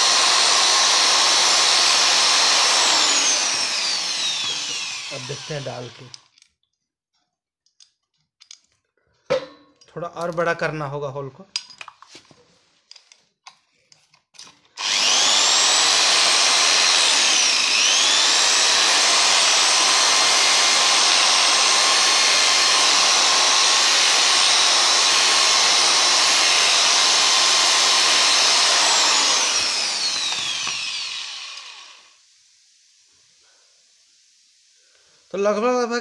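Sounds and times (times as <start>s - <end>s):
electric drill whining: 0.0s - 6.3s, 14.7s - 32.2s.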